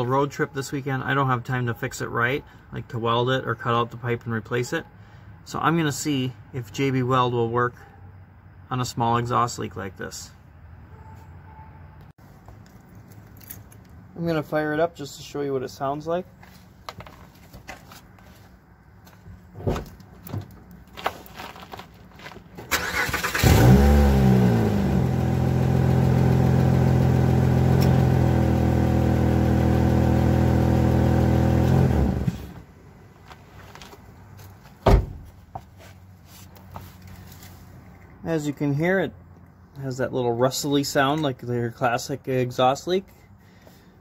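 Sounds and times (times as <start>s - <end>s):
car engine cranking and starting: 22.6s - 32.7s.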